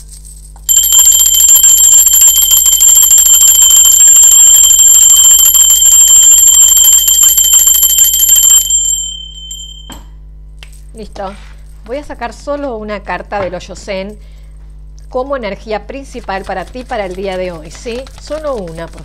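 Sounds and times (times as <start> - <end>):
brass hand bell ringing: 0.7 - 10.2.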